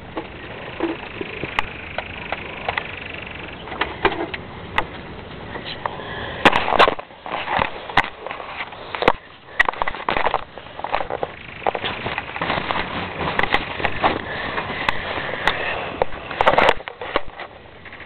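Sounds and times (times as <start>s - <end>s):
steady background noise: 0.0s - 18.0s
rustling and scuffling: 3.7s - 18.0s.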